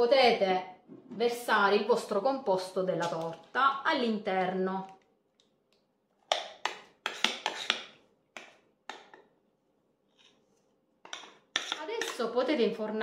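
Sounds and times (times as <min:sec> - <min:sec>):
metal spoon scraping ceramic bowl: 0:07.0 - 0:07.9, 0:11.1 - 0:12.4.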